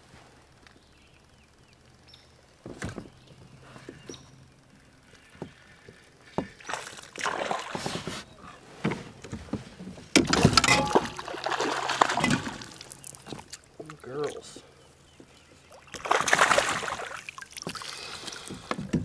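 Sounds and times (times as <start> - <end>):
fish splashing at water surface: 10.3 - 13.3, 15.8 - 18.5.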